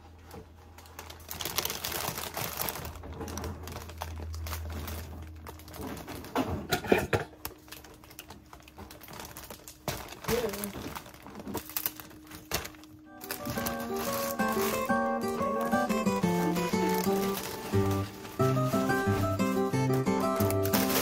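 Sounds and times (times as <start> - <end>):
plastic sleeve crackling: 0.2 - 6.7, 7.4 - 21.0
low hum: 2.9 - 9.0.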